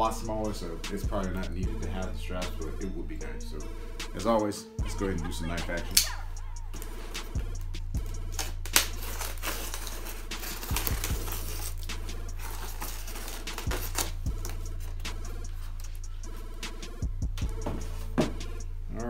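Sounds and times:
quiet background music: 0.0s - 19.0s
knife slitting packing tape: 8.3s - 14.6s
styrofoam rasping scrape: 8.4s - 16.0s.

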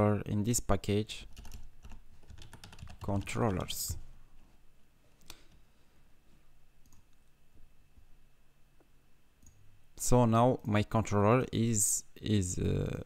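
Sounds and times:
low steady hum: 0.0s - 13.0s.

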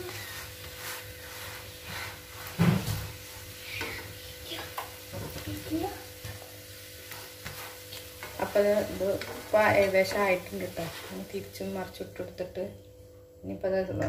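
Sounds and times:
spatula scraping a frying pan: 0.0s - 4.7s, 6.2s - 11.7s
batter sizzling: 0.0s - 13.1s.

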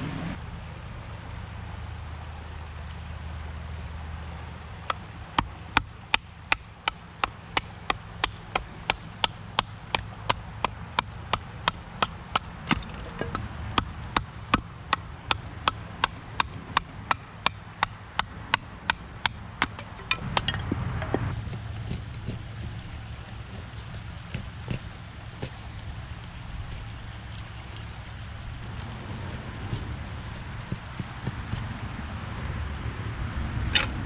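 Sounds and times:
sharp wooden knocks: 4.9s - 25.6s, 29.2s - 31.7s.

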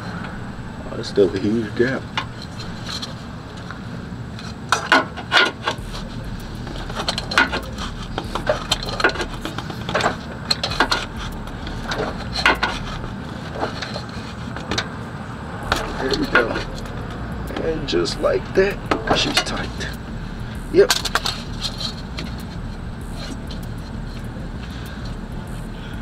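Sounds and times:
steady low hum: 0.0s - 26.0s
sharp clicks and knocks: 4.4s - 14.9s.

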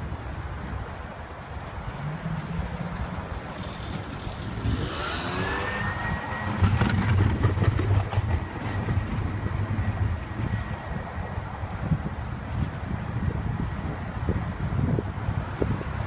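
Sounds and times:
wind rumbling on microphone: 0.0s - 16.0s
rising high-pitched whine: 1.9s - 11.5s.

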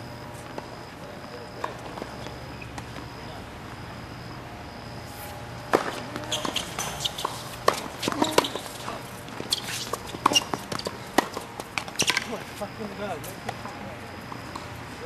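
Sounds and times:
shoes squeaking on court: 0.1s - 4.2s, 5.0s - 15.0s
tennis racket strokes: 5.1s - 12.6s
ball bouncing: 5.6s - 8.8s, 9.4s - 12.4s.

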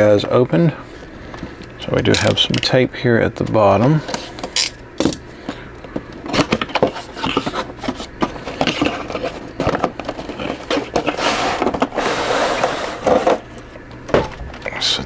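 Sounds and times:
packaging scrapes and crackles: 6.4s - 13.5s.

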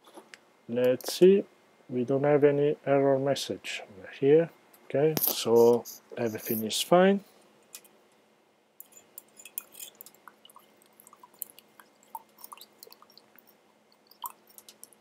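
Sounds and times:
faint steady hum: 0.0s - 15.0s
small clicks and ticks: 8.8s - 15.0s.

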